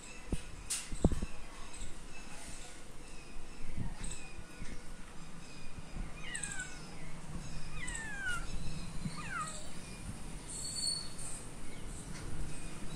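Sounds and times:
cat meowing: 0:07.8 - 0:08.5, 0:09.1 - 0:09.7.

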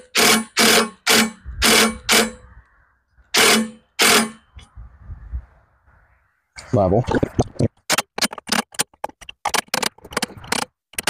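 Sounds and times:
motorised tool bursts: 0:00.0 - 0:02.4, 0:03.3 - 0:04.4.

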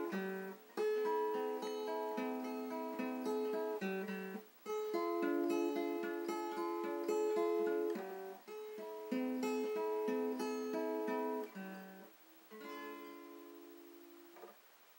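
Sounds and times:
acoustic guitar played slowly: 0:00.0 - 0:14.6.

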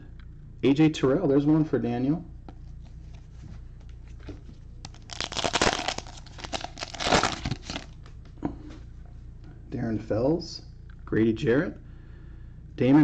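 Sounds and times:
cellophane crinkling and tearing: 0:04.8 - 0:08.1.

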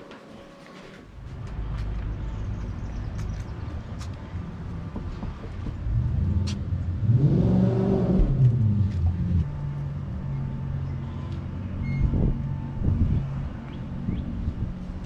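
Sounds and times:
low engine hum: 0:01.0 - 0:15.0.

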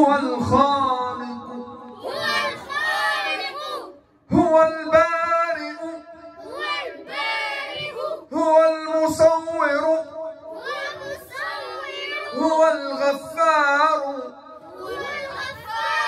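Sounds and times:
children singing in unison: 0:02.0 - 0:04.0, 0:06.4 - 0:08.3, 0:10.5 - 0:12.4, 0:14.7 - 0:16.0.

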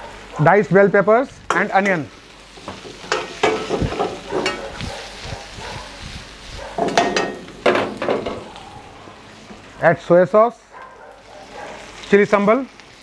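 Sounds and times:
vegetables sizzling: 0:00.0 - 0:13.0
metal ladle clanking against wok: 0:02.7 - 0:04.7, 0:06.8 - 0:08.4.

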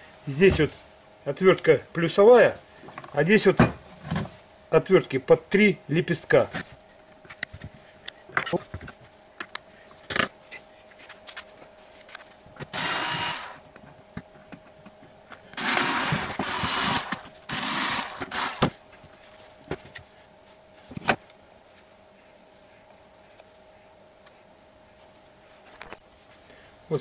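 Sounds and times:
cordless drill running: 0:12.7 - 0:13.6, 0:15.6 - 0:18.7.

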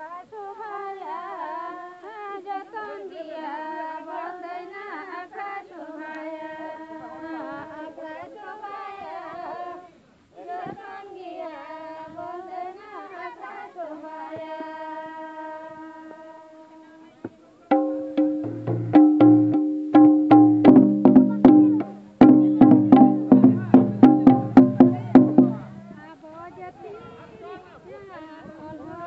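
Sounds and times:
women singing: 0:00.0 - 0:17.4, 0:21.3 - 0:29.0
hand drum fast rhythm: 0:17.7 - 0:26.0.

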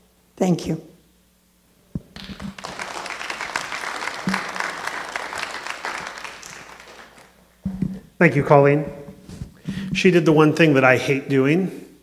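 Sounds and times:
congregation applauding: 0:02.1 - 0:07.4.

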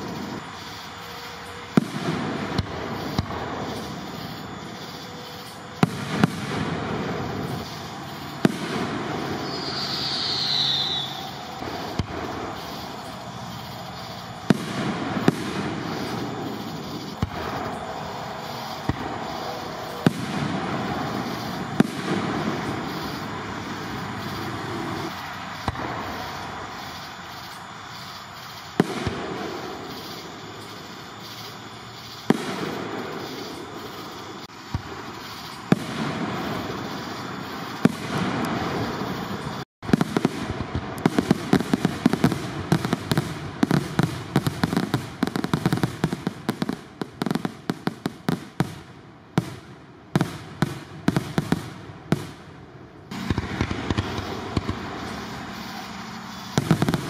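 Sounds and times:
fireworks bangs: 0:00.0 - 0:57.0
fireworks crackle: 0:00.0 - 0:57.0
falling whistle: 0:09.3 - 0:11.6.

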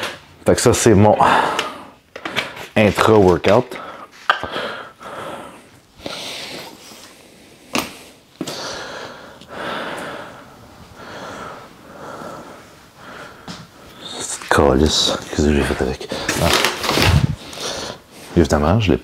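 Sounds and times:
man breathing through nose: 0:03.7 - 0:14.2, 0:17.3 - 0:18.3.

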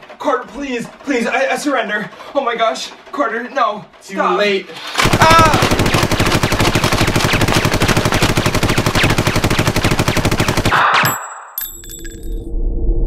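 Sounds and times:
rapid machine-gun fire: 0:05.0 - 0:11.0
high ringing tones: 0:11.0 - 0:12.5.

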